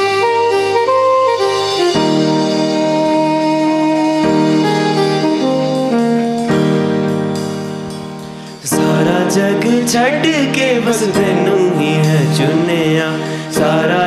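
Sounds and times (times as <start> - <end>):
held keyboard chords: 0.0 - 14.0
live band melody: 0.0 - 14.0.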